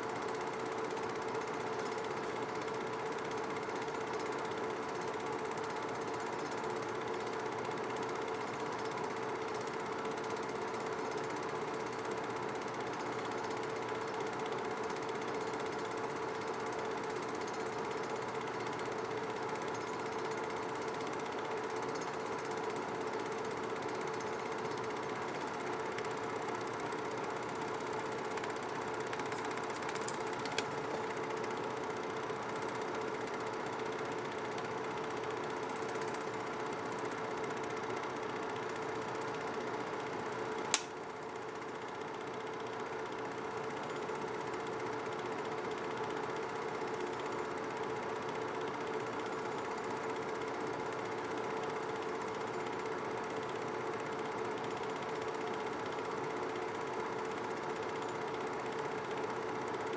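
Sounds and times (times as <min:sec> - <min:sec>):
film projector whirring: 0:00.0 - 0:59.9
small click: 0:29.2 - 0:31.1, 0:40.6 - 0:41.0.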